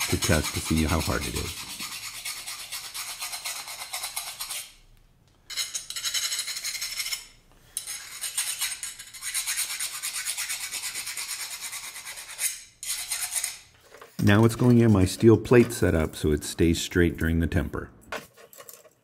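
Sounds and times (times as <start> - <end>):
file rasping on steel: 0.0 - 4.8, 5.9 - 13.7.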